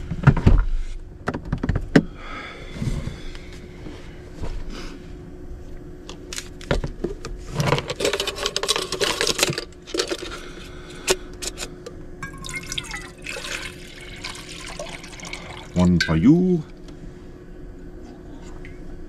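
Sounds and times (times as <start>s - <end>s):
water pouring into a cup: 12.2s - 16.2s.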